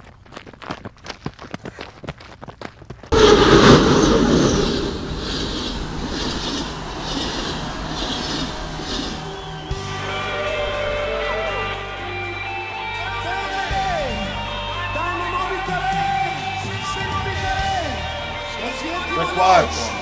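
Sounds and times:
running footsteps on gravel: 0.0 - 3.2
loud rushing noise with clatter: 3.1 - 9.8.

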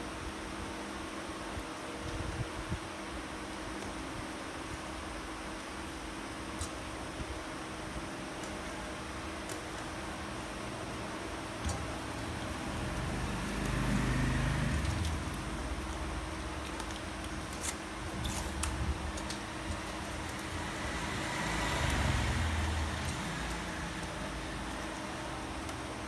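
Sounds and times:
steady background hum: 0.0 - 26.0
vehicles passing: 11.8 - 16.9, 19.3 - 26.0.

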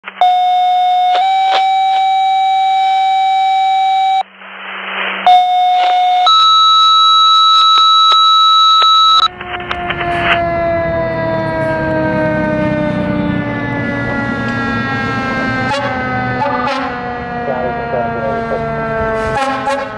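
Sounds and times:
two-tone paging tones: 0.2 - 4.2, 5.3 - 9.3
fire engine siren: 0.2 - 4.3, 5.3 - 19.9
radio hiss: 4.3 - 6.3, 17.4 - 18.8
truck engine rumble: 9.0 - 19.9.

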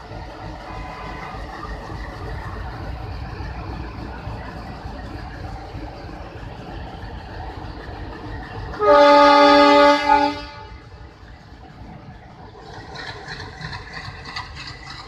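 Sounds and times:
locomotive engine rumble: 0.0 - 15.0
locomotive horn blasts: 8.8 - 10.8.

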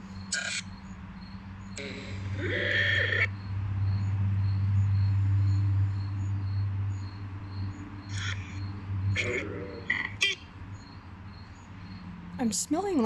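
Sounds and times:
faint crickets chirping: 0.0 - 13.0
loud steady low hum: 1.8 - 10.4.

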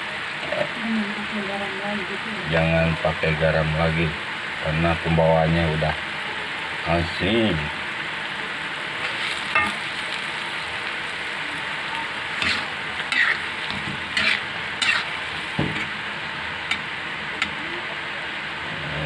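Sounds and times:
food sizzling: 0.0 - 19.0
metal spatula scraping a wok: 9.0 - 10.0, 12.4 - 15.5.

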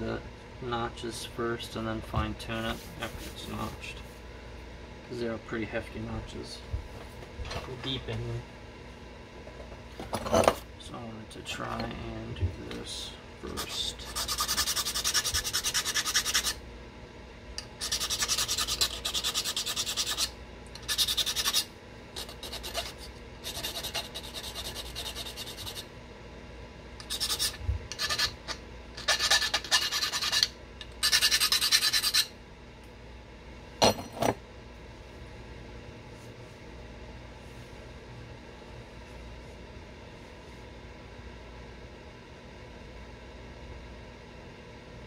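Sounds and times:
stone being scraped by hand: 13.6 - 16.6, 17.8 - 25.9, 27.0 - 32.3.

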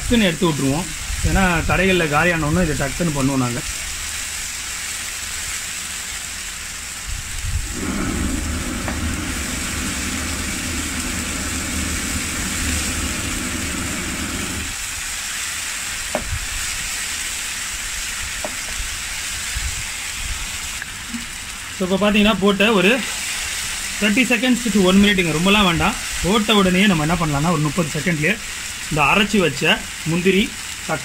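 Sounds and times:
paste sizzling in hot oil: 0.0 - 31.0
low rumble of flames: 0.9 - 21.8.

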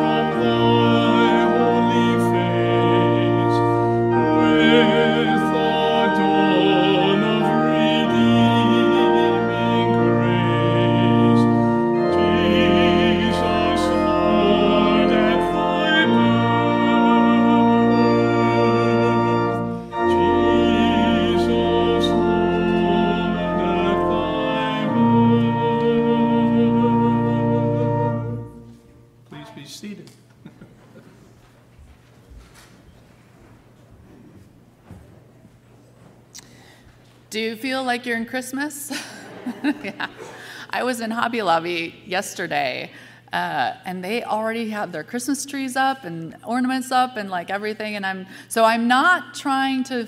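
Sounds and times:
organ playing a hymn: 0.0 - 29.4.

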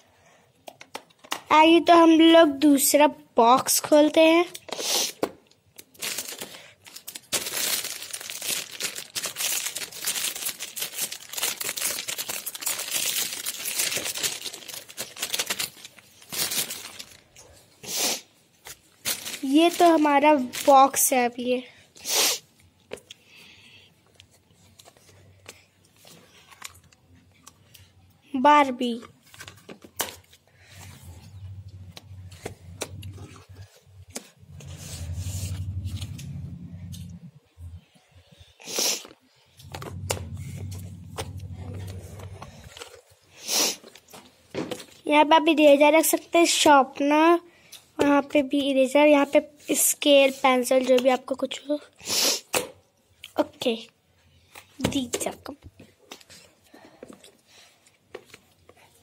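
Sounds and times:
plastic wrapper crinkling: 5.7 - 17.4, 18.6 - 21.1.

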